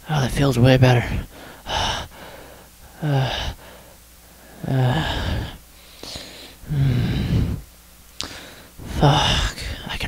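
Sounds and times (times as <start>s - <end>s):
low voice gasping for breath: 1.3s - 7.6s.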